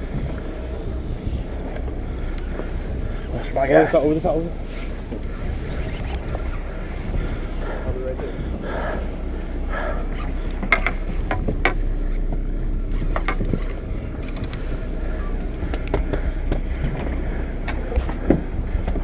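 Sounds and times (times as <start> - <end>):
wind on microphone: 0.0 - 9.2
boat low rumble: 0.0 - 19.0
sharp clicks and knocks: 10.6 - 12.4.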